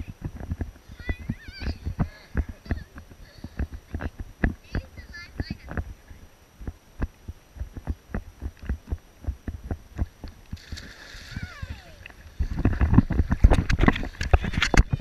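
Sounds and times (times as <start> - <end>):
small waves slapping camera: 0.0 - 15.0
person plunging into water: 10.5 - 15.0
swimmer splashing: 10.6 - 14.7.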